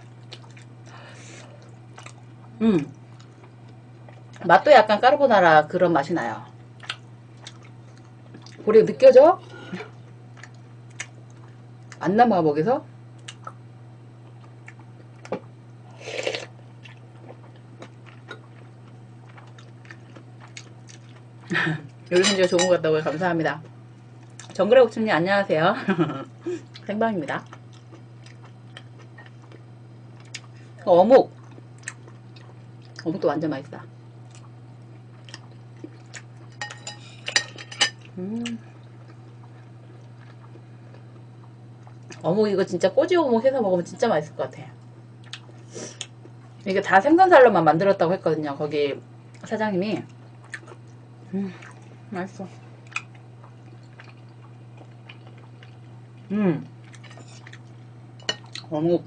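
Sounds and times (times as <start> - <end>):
person chewing and eating: 0.1 - 4.4, 6.8 - 8.6, 14.2 - 21.3, 26.6 - 30.6, 31.4 - 33.0, 34.3 - 42.2, 45.2 - 46.4, 50.2 - 50.9, 51.5 - 52.0, 52.8 - 58.7
person humming: 2.6 - 3.0, 38.2 - 38.7, 51.3 - 51.6, 56.3 - 56.7.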